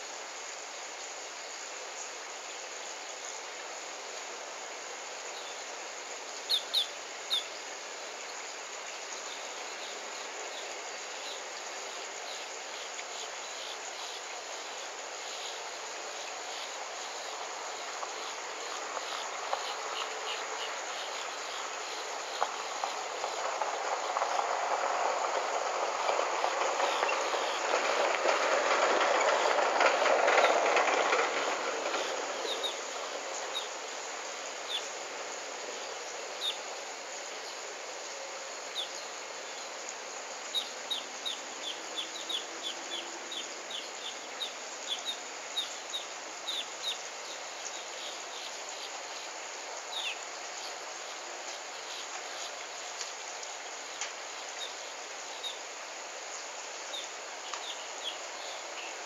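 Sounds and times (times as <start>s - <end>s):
steady hiss: 0.0s - 59.0s
rushing noise: 9.4s - 52.9s.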